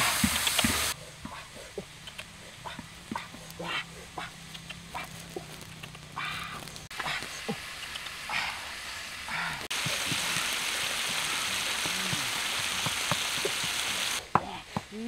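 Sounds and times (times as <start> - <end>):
insects sizzling in a wok: 0.0 - 1.0, 4.8 - 14.9
fire crackling and popping: 0.0 - 15.0.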